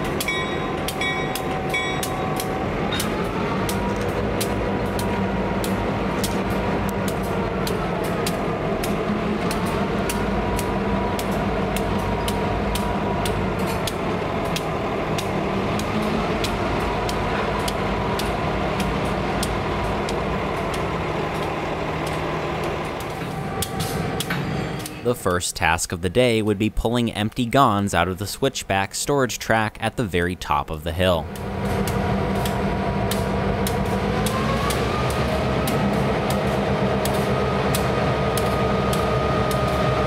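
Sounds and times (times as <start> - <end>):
wheels clicking over rail joints: 0.0 - 25.4
locomotive engines humming: 0.0 - 40.0.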